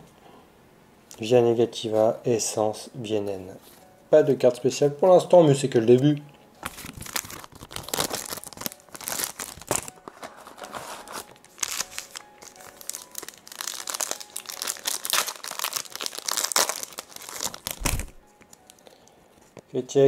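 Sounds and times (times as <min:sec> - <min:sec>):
foil wrappers crinkling: 0:06.6 - 0:19.2.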